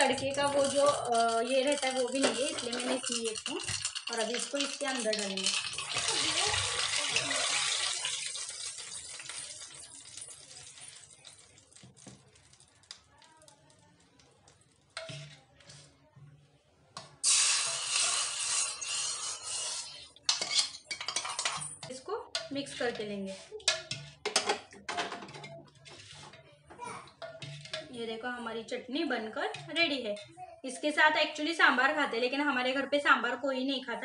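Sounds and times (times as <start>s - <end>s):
metal pan and ladle clinking: 0.0s - 11.9s, 14.9s - 15.8s, 17.0s - 26.4s, 27.1s - 28.0s, 29.2s - 30.4s
hot oil sizzling: 0.0s - 15.3s, 17.2s - 21.8s
loud hiss: 17.2s - 19.9s.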